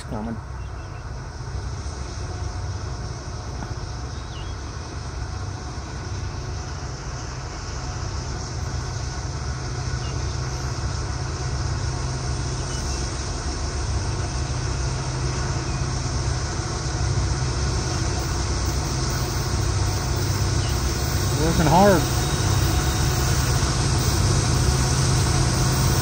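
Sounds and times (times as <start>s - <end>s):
diesel locomotives working hard: 0.0s - 26.0s.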